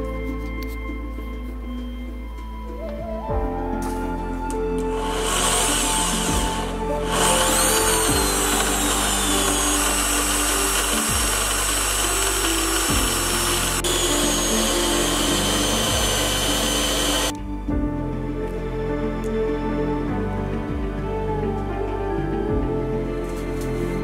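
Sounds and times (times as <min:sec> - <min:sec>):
small electric motor whine: 0:04.9 - 0:17.3
sandpaper sanding hiss: 0:05.0 - 0:17.3.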